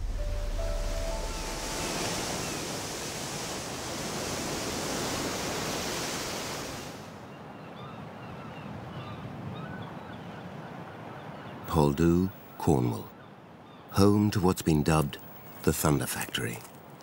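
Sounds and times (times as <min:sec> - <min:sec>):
surf breaking over rocks: 0:00.0 - 0:07.1.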